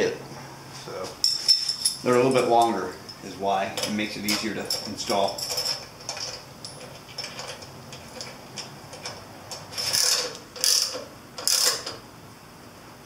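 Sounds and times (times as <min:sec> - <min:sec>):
ratchet wrench clicking: 0:08.2 - 0:12.0.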